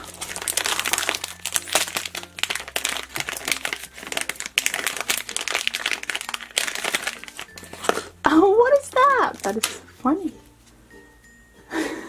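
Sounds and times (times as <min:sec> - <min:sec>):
foil bag crinkling: 0:00.0 - 0:08.1, 0:08.7 - 0:09.8.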